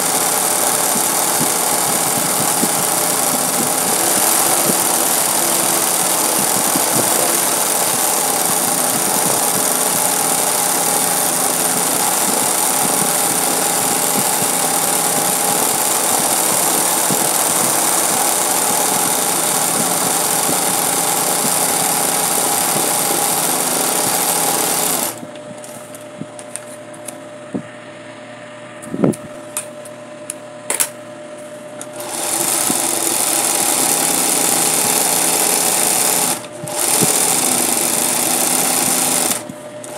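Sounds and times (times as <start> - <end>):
sewing machine running fast: 0.0 - 25.2, 31.9 - 39.9
faint hum: 25.1 - 32.0.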